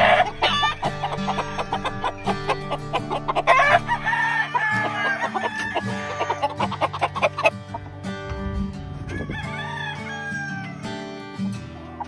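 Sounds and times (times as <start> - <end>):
background music with a beat: 0.0 - 4.2, 5.5 - 9.2
roosters crowing: 0.0 - 8.0, 8.9 - 11.0.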